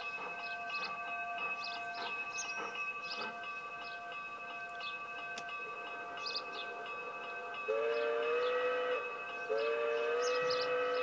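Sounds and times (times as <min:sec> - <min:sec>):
chord of high tones: 0:00.0 - 0:11.0
steam locomotive whistle: 0:07.7 - 0:11.0.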